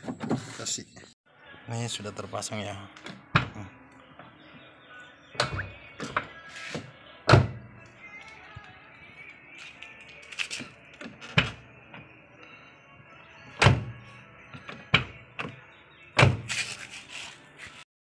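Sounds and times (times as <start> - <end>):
car door handle and latch clunks: 16.2 - 16.5.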